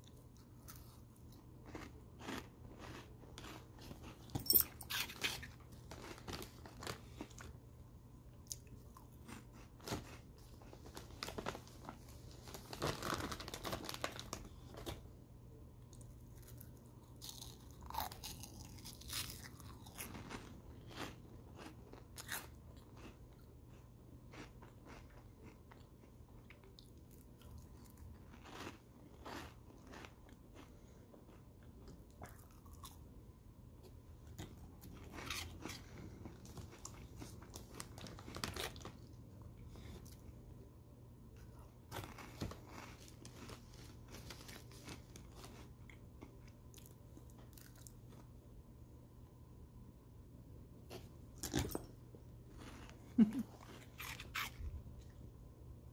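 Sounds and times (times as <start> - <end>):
crunchy snack chewing: 0.0 - 7.6, 8.4 - 12.0, 15.9 - 33.0, 34.2 - 40.3, 41.4 - 48.2, 52.5 - 55.2
faint low hum: 0.0 - 55.9.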